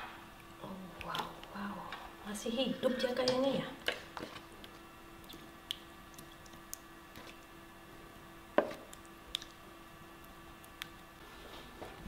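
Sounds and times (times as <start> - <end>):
faint steady hum: 0.0 - 12.0
wet squishes of spice paste: 8.6 - 9.6.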